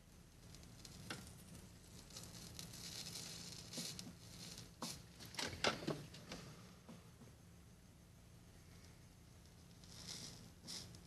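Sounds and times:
soldering iron hiss: 0.6 - 5.2, 9.7 - 11.0.

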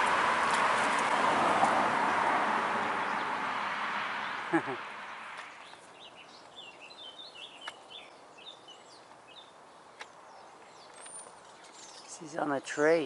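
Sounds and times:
high chirping bird song: 3.0 - 13.0.

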